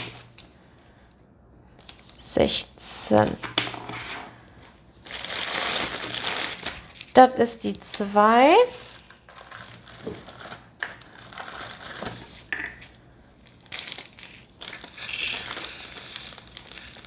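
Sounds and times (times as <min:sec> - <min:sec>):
plastic bag crinkling: 0:05.0 - 0:07.2, 0:08.6 - 0:12.5, 0:13.4 - 0:17.0.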